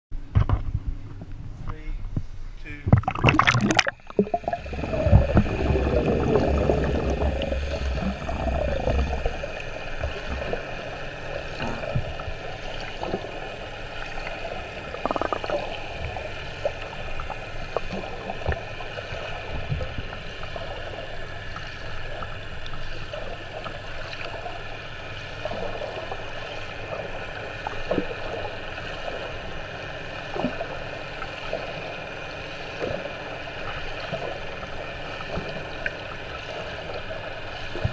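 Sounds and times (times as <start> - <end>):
low underwater rumble: 0.3 - 23.8
muffled churning water underwater: 0.3 - 37.9
bubbling: 2.9 - 21.0.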